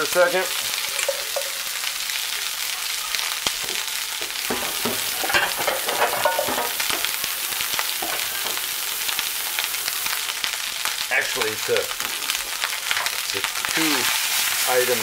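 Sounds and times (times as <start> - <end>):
rice sizzling in hot oil: 0.0 - 15.0
crackling pops: 3.1 - 14.3.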